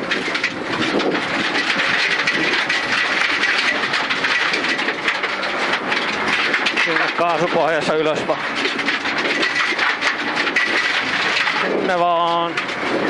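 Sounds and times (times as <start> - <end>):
car engine running hard: 0.0 - 13.0
stones clicking against car: 0.0 - 13.0
tyres on gravel: 0.0 - 13.0.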